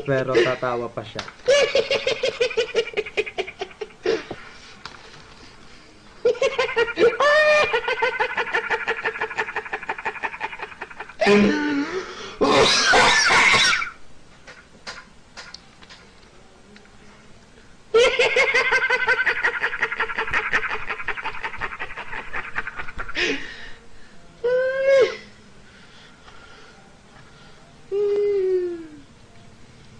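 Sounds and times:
man laughing high-pitched: 0.0 - 0.8, 6.3 - 13.9.

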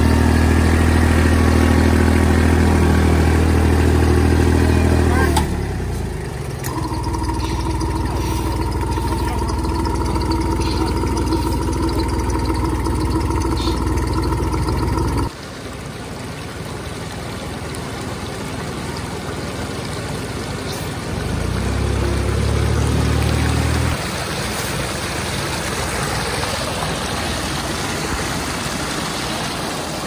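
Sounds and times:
tractor engine running: 0.0 - 15.3.

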